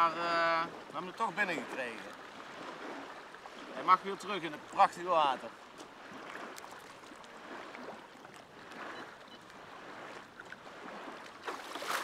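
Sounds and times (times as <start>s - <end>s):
water lapping around legs: 0.0s - 12.0s
fish splashing: 6.0s - 12.0s.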